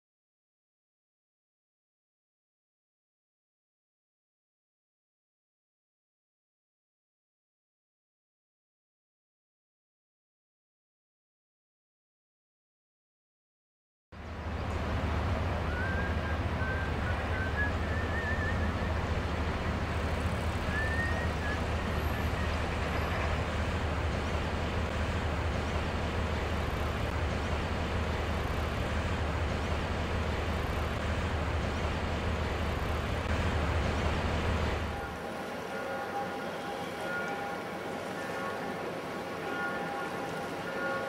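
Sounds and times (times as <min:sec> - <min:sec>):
low rumble with hiss: 0:14.2 - 0:35.0
faint warbling whistles: 0:15.6 - 0:23.3.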